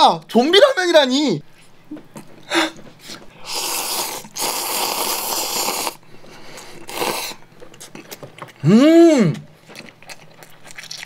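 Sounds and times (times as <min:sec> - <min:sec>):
person slurping noodles: 0:03.4 - 0:06.0, 0:06.6 - 0:07.4.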